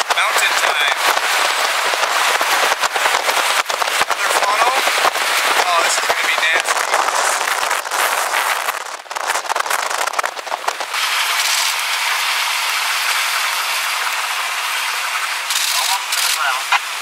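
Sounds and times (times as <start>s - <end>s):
wind buffeting microphone: 0.0s - 12.6s
wind and road noise through window: 0.0s - 17.0s.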